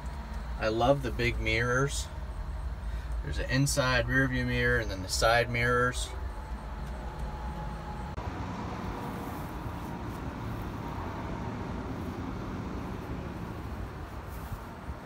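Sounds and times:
faint steady hum: 0.0s - 8.3s
low outdoor background rumble: 0.0s - 15.0s.

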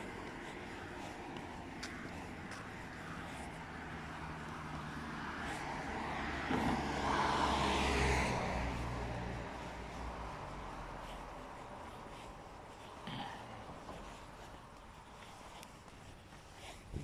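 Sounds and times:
car driving past: 3.8s - 11.1s.

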